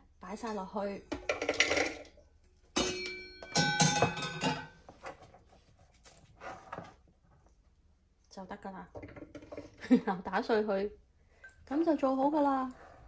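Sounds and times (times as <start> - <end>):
metal pan clanking: 2.8 - 4.8.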